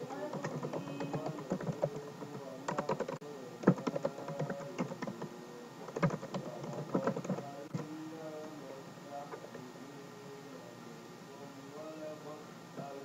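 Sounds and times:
keyboard typing clicks: 0.1s - 5.3s, 5.9s - 7.9s.

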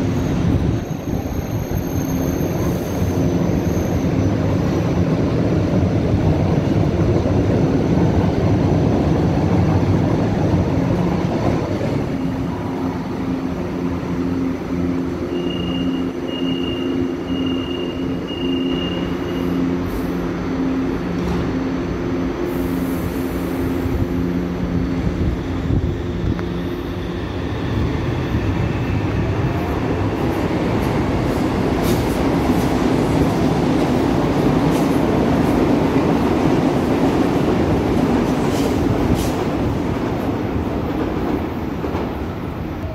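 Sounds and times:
low pulsing train hum: 0.0s - 42.9s
train rumbling along platform: 0.0s - 42.9s
short high beeps: 15.3s - 19.6s.

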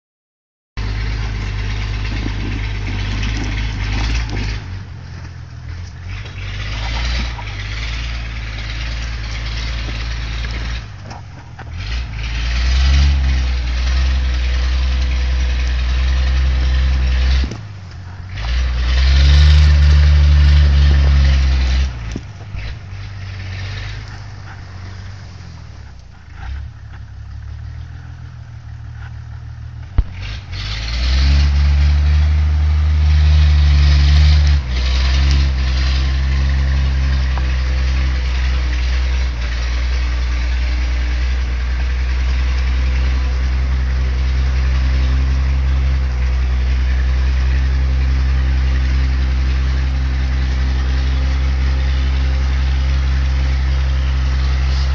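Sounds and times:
truck engine revving under load: 0.8s - 54.9s.

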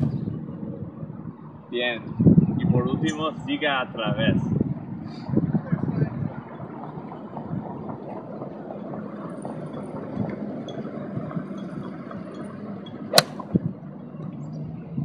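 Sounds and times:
golf club striking ball: 13.1s - 13.6s.

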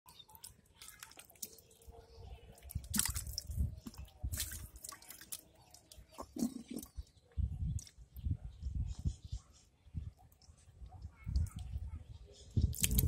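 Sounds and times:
fish splashing in muddy water: 2.5s - 6.9s.

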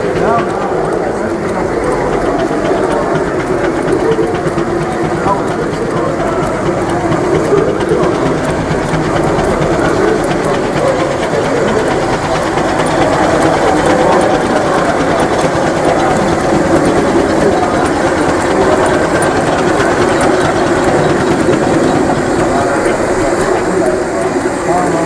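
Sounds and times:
fast faint ticking: 0.0s - 25.0s
steam engine mechanical running: 0.0s - 25.0s.

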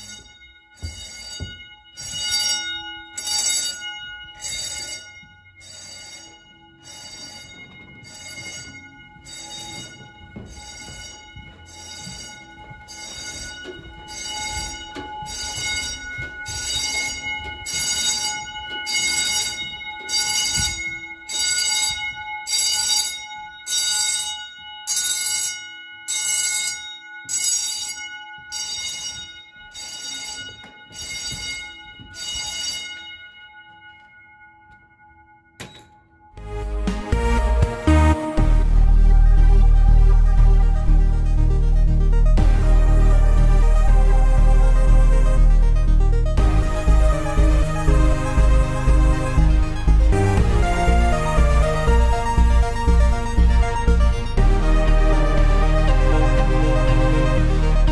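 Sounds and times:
fire alarm bells ringing: 0.0s - 57.9s.

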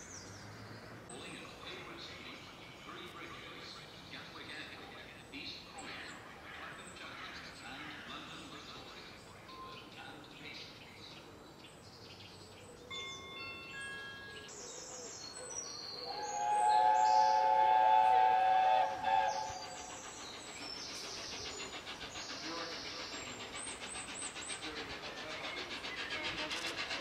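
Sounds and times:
birds chirping: 0.0s - 27.0s
steam locomotive whistle: 16.1s - 19.9s.

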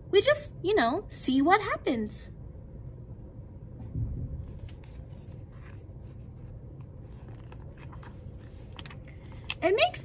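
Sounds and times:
steady low rumble: 2.3s - 9.6s
book pages rustling: 4.4s - 9.9s.

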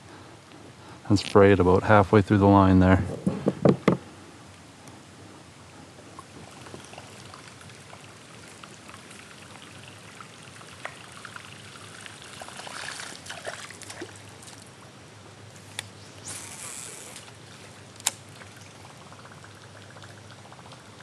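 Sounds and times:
river water trickling and lapping: 5.7s - 21.0s
light clicks and small splashes: 6.1s - 14.8s, 15.5s - 21.0s.

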